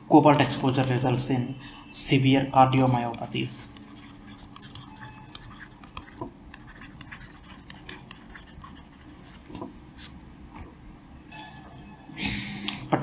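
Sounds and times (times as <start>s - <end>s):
stylus scratching on drawing tablet: 2.7s - 10.2s.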